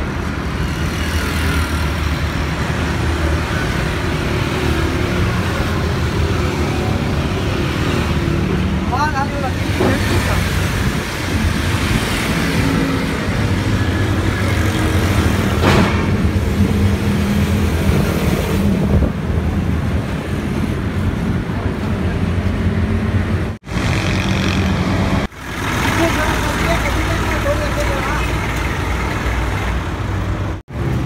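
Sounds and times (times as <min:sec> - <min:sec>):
diesel engine running: 0:22.5 - 0:31.0.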